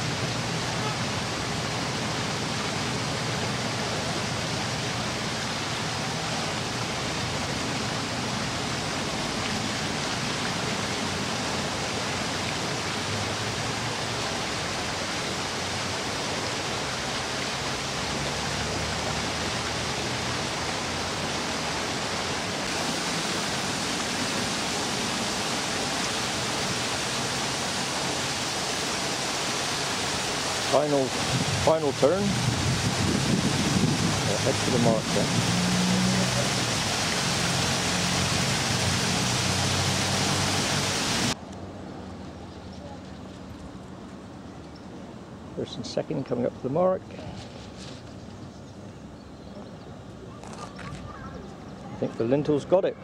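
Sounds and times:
outdoor rushing noise: 0:30.8 - 0:41.4.

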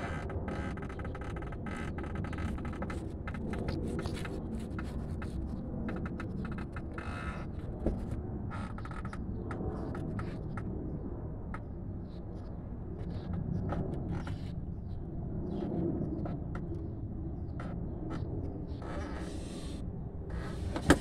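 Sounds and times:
squeaky creaks and clicks: 0:00.0 - 0:10.7, 0:13.0 - 0:14.6, 0:17.5 - 0:19.4.

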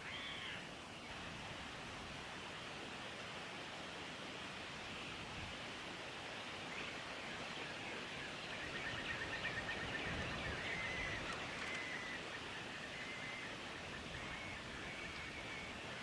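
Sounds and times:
faint bird calls: 0:00.0 - 0:01.1, 0:06.7 - 0:16.0.

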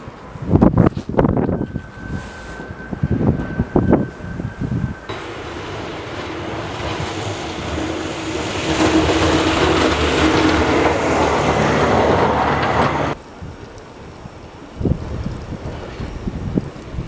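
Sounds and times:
truck engine hum: 0:01.3 - 0:13.2
snow plow pushing snow: 0:05.0 - 0:13.2.

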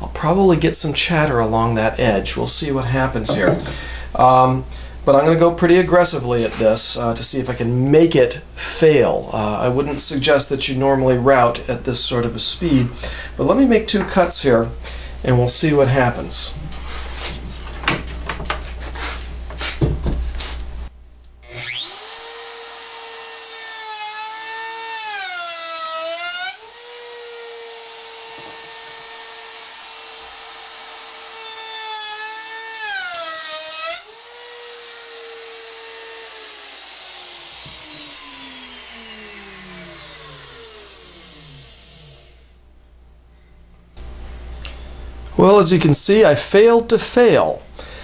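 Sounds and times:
handling knocks: 0:03.2 - 0:03.8
router whine: 0:21.4 - 0:42.6.

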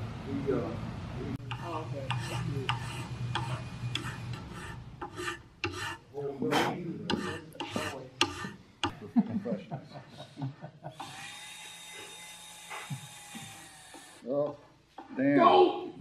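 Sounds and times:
file rasping on metal barrel: 0:01.4 - 0:09.0.

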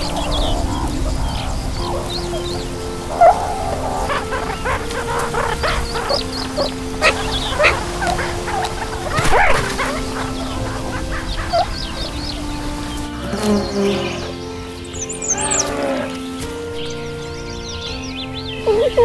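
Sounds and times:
meerkat pups squeaking: 0:00.0 - 0:14.4
music with long held notes: 0:00.0 - 0:19.0.

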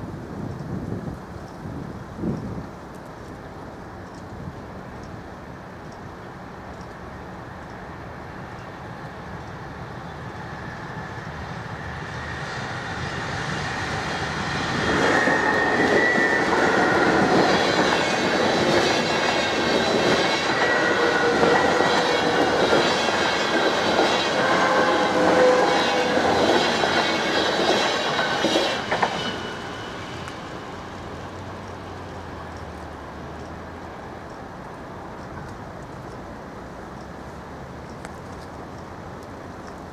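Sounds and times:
electric train passing: 0:05.4 - 0:35.5
wheels squealing: 0:10.4 - 0:32.6.

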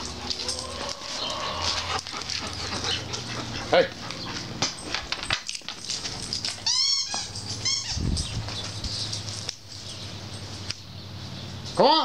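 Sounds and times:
dog whining: 0:00.0 - 0:04.5, 0:06.2 - 0:08.3.

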